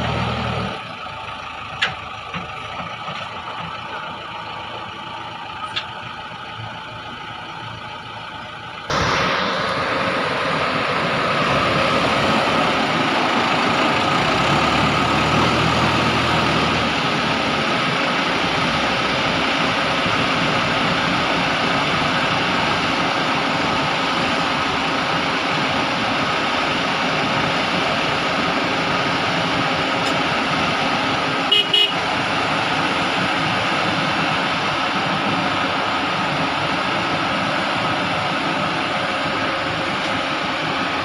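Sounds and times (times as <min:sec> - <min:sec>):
diesel engine running: 0:00.0 - 0:41.0
short horn toots: 0:31.5 - 0:32.0.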